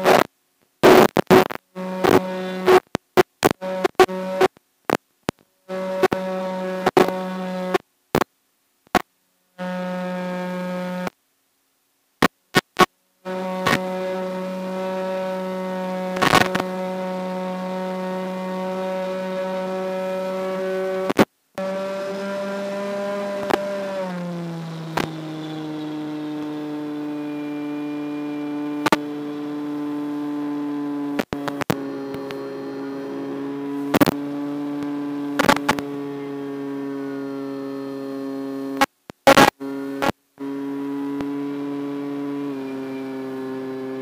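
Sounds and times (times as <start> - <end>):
sharp crackles: 0.0 - 6.2, 33.4 - 35.9
electric motor and propeller whine: 13.3 - 38.8, 39.6 - 44.0.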